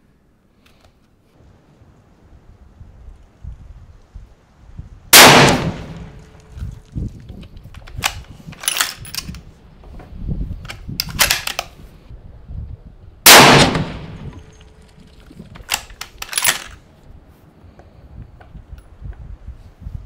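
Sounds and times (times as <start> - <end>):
rifle shot: 5.1 - 6.4, 13.2 - 14.5
rifle bolt clicking: 10.7 - 11.7, 15.6 - 16.8.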